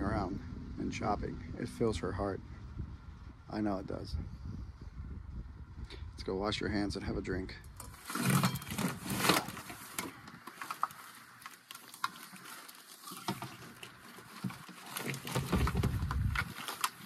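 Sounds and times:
low rumble: 0.0s - 8.1s
plastic clicks and rustling: 7.8s - 17.0s.

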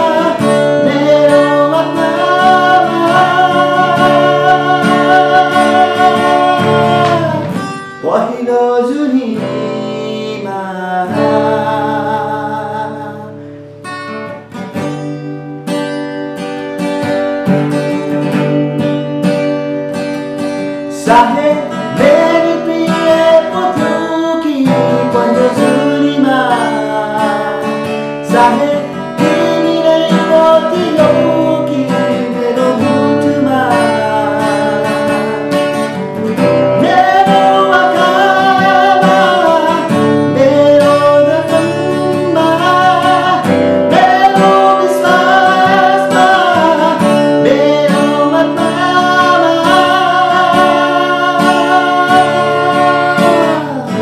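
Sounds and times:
man singing: 0.0s - 13.6s, 20.8s - 54.0s
strummed acoustic guitar: 0.0s - 54.0s.

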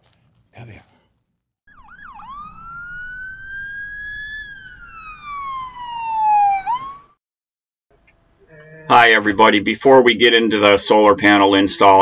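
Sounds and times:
siren wailing: 1.7s - 7.2s
siren whoop: 1.7s - 7.2s.

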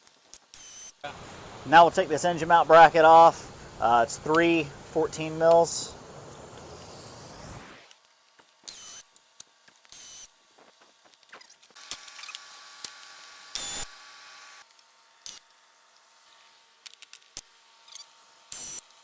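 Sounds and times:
cordless power tool whirring: 11.7s - 15.6s.

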